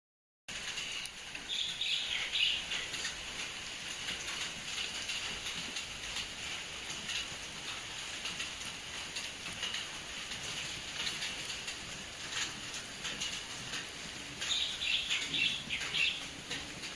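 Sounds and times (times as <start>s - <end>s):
birds chirping: 1.5s - 3.0s, 14.4s - 16.3s.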